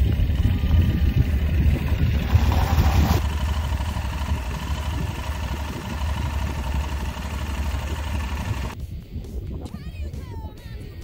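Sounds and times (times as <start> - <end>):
motorcycle engine idling: 0.0 - 8.8.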